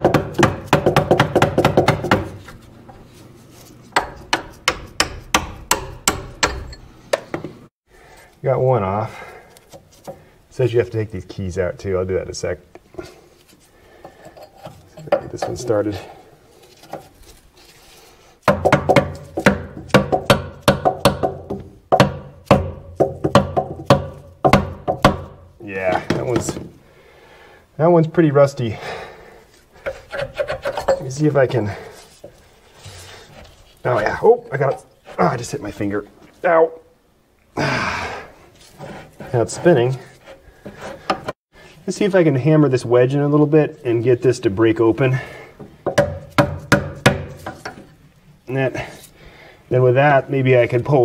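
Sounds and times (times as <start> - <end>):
hammer striking metal lever: 4.0 - 7.3.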